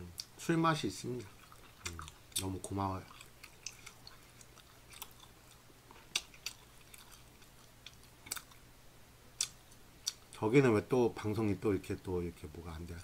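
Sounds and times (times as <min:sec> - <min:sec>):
faint chewing of food: 0:00.0 - 0:08.7, 0:09.4 - 0:10.4
low steady hum: 0:00.0 - 0:13.0.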